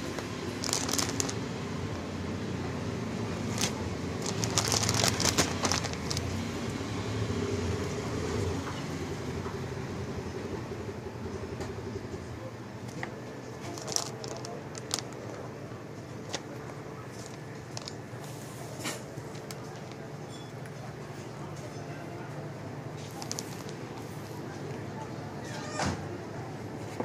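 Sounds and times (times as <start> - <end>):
plastic packaging crinkling: 0.0 - 1.5, 3.3 - 6.5, 13.6 - 15.6, 16.2 - 18.2, 23.0 - 23.8
low background rumble: 0.0 - 6.6.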